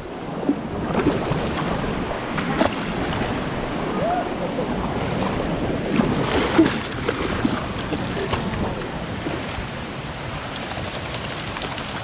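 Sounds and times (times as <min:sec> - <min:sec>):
stream water running: 0:00.0 - 0:12.0
dog wading splashes: 0:05.9 - 0:09.6, 0:10.3 - 0:12.0.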